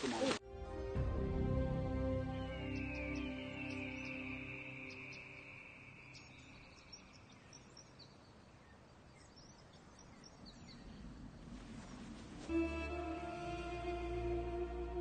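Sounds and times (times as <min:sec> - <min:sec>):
background music: 0:00.0 - 0:05.8, 0:12.4 - 0:15.0
low outdoor hiss: 0:01.8 - 0:15.0.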